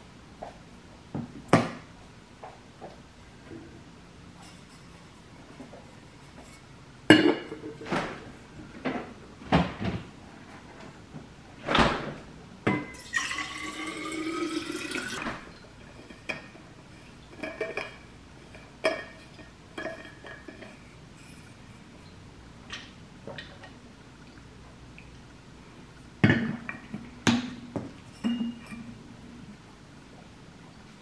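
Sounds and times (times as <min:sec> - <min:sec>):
water pouring into bottle: 0:13.0 - 0:15.2.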